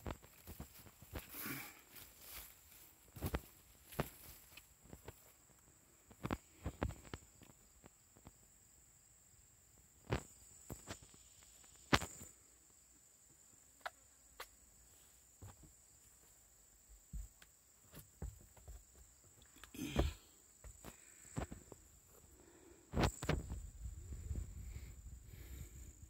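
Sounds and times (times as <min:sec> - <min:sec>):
footsteps on wood and leaves: 0:00.0 - 0:05.4
rustle: 0:00.0 - 0:08.3, 0:10.0 - 0:16.5
high insect drone: 0:00.0 - 0:26.0.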